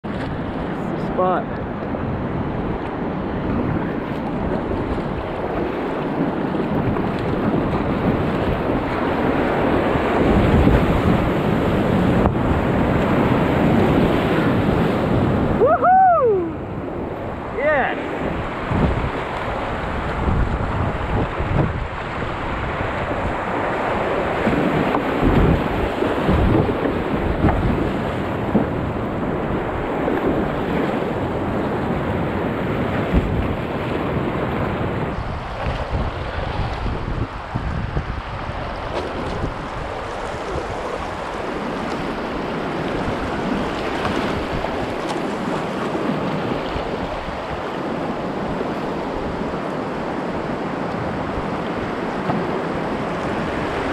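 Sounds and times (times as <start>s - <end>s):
wind buffeting microphone: 0.0s - 53.9s
river rapids roaring: 0.3s - 53.9s.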